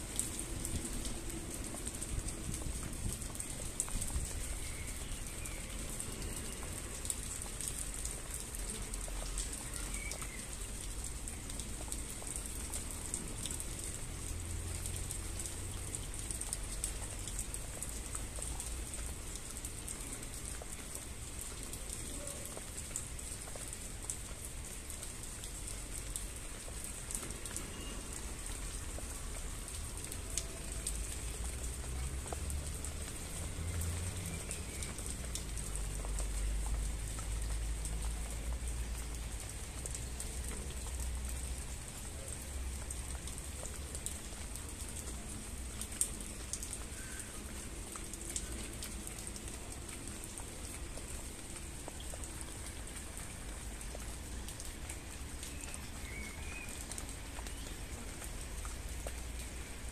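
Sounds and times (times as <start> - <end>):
raindrops ticking on a surface: 0.0 - 59.9
steady rain hiss: 0.0 - 59.9.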